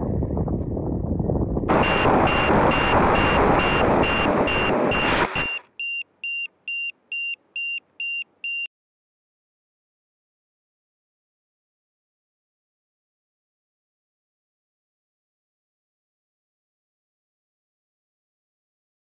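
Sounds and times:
high-pitched electronic beeping: 0:01.7 - 0:08.7.

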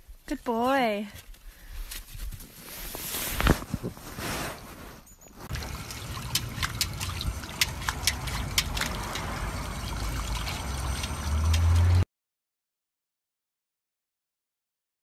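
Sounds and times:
puppy splashing water: 0:05.5 - 0:12.0
water trickling in fountain: 0:05.5 - 0:12.0.

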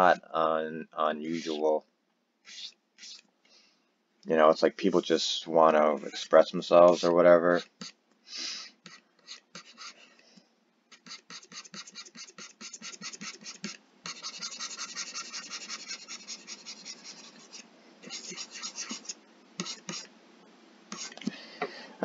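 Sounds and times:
stylus scratching on tablet: 0:01.3 - 0:01.6, 0:02.4 - 0:03.2, 0:05.9 - 0:08.0, 0:08.8 - 0:10.0, 0:10.9 - 0:20.1, 0:20.9 - 0:21.2.

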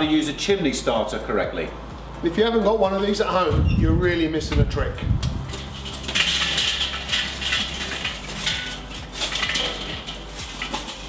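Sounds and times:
charcoal clattering from metal starter: 0:04.4 - 0:11.0.

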